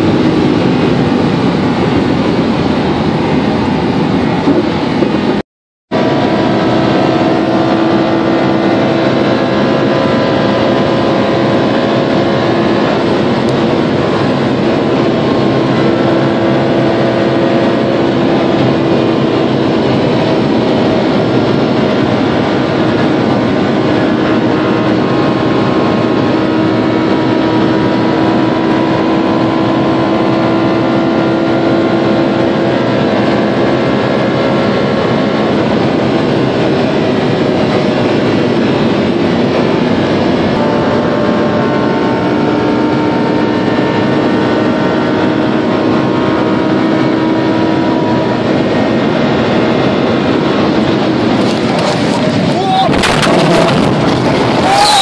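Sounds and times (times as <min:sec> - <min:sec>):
car engine droning: 0:00.0 - 0:55.0
wind and road noise: 0:00.0 - 0:55.0.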